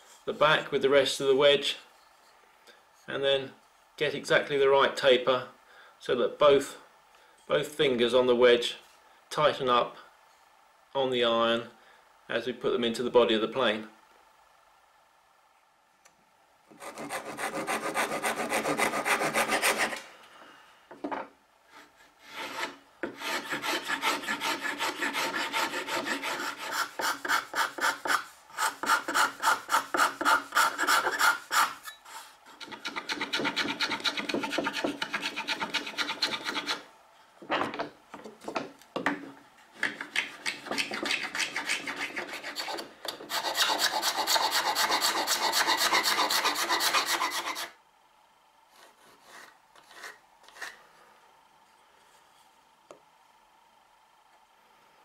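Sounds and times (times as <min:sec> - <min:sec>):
wood rubbing against rasp: 0:16.8 - 0:20.0, 0:21.7 - 0:36.8, 0:39.8 - 0:47.7.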